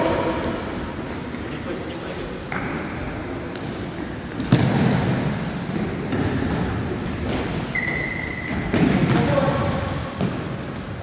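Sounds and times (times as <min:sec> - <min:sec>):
football kicked with echo: 0:04.4 - 0:05.2.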